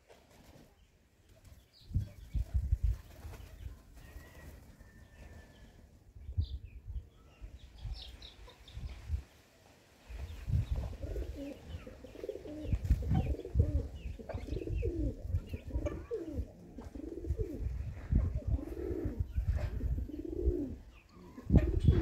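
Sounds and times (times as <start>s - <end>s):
pigeons cooing: 10.7s - 22.0s.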